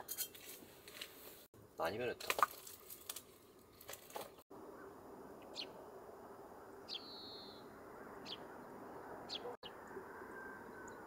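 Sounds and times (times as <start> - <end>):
small bird chirping: 4.8 - 5.8, 6.9 - 8.6.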